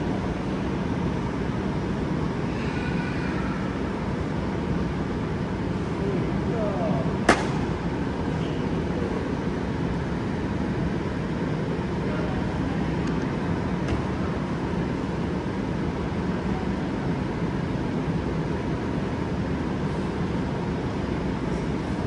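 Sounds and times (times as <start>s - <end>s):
steady low background noise: 0.0s - 22.0s.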